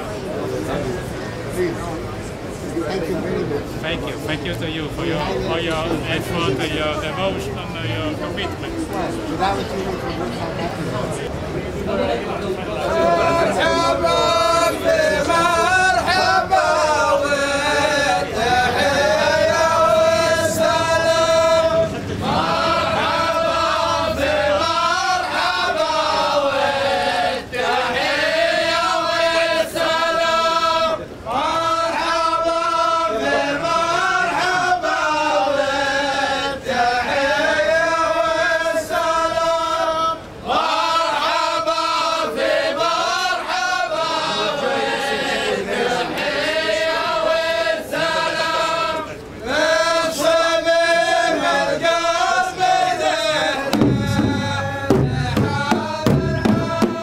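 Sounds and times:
men chanting in unison: 12.7s - 57.0s.

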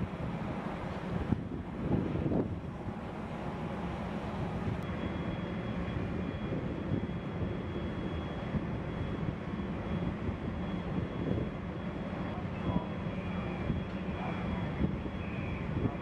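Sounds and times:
faint high whine: 0.0s - 16.0s.

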